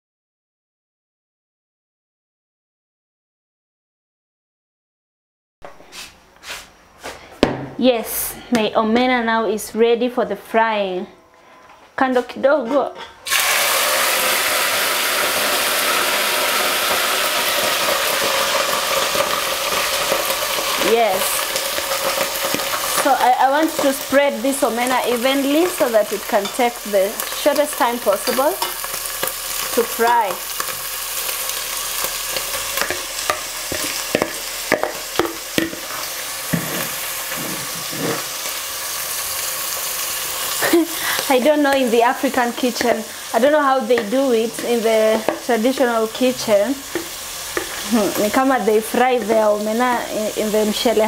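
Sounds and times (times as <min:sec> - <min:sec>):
small fish sizzling in a pot: 0:13.2 - 0:51.0.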